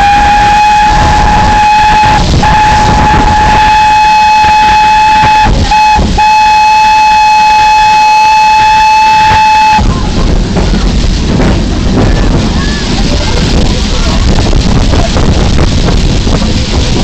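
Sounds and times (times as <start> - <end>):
steam locomotive whistle: 0.0 - 9.9.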